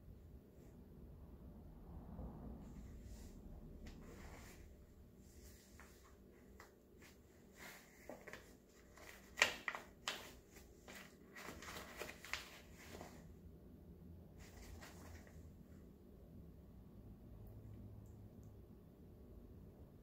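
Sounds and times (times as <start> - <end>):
cat pawing in bag: 7.5 - 13.2
plastic shopping bag crinkling: 7.9 - 13.2.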